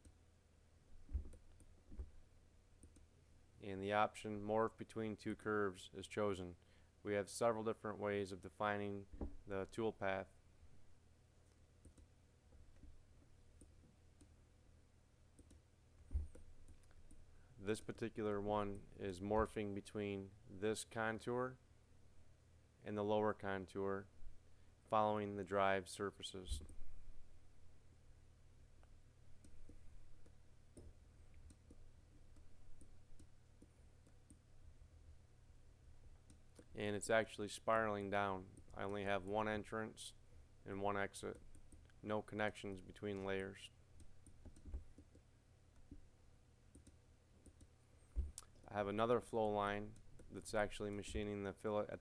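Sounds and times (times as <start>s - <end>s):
low steady hum: 0.0s - 52.0s
soft computer mouse clicks: 2.8s - 3.1s, 11.4s - 12.9s, 15.4s - 17.2s, 28.8s - 34.4s, 44.0s - 46.0s, 46.7s - 48.6s.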